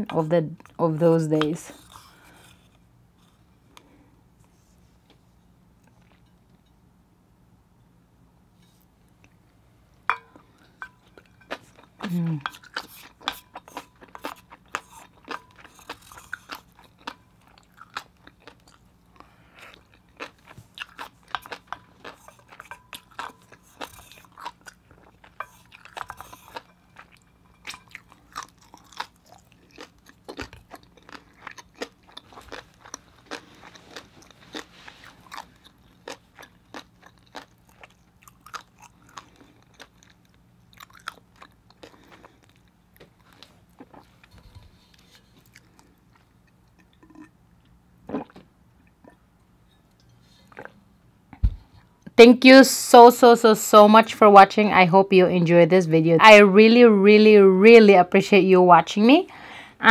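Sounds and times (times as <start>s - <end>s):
wet close chewing: 11.5s - 47.4s.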